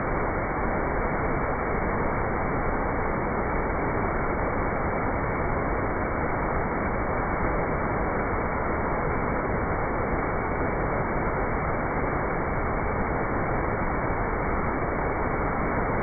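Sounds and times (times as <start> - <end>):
waterfall pouring into pool: 0.0 - 16.0.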